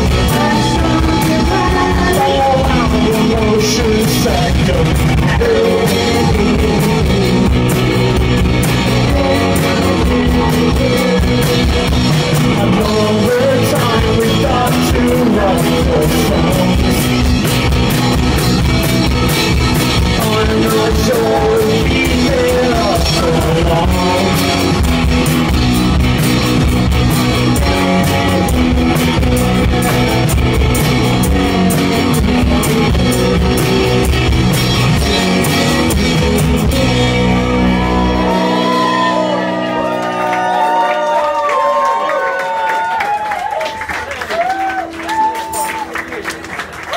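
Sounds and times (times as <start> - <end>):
person singing: 0.0 - 17.4, 19.9 - 24.9, 27.5 - 42.4
drum kit: 0.0 - 41.6
guitar: 0.0 - 46.9.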